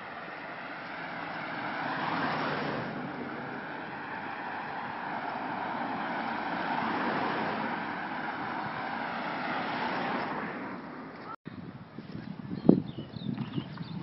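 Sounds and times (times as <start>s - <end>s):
car driving past: 0.4s - 10.9s.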